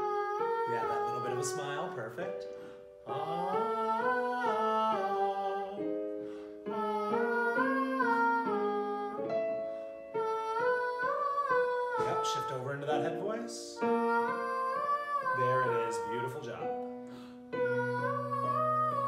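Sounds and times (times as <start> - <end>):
digital piano chords: 0.0 - 19.0
man singing vocal scale: 0.6 - 6.0, 12.0 - 14.2, 15.2 - 16.8.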